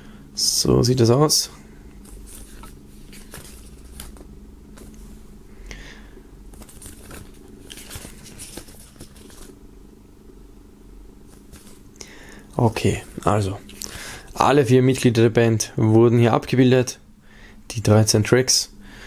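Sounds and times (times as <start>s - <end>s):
steady low hum: 0.0s - 19.0s
paper pages rustling: 2.0s - 5.1s, 6.5s - 9.6s, 11.3s - 11.9s.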